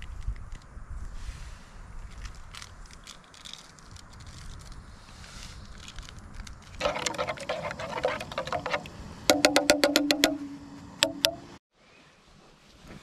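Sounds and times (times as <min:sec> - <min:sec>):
spoon scraping metal tin: 0:06.8 - 0:10.4.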